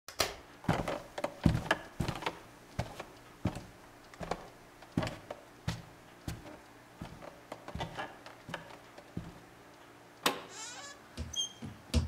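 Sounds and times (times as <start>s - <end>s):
footsteps on wooden floor: 0.7s - 9.5s.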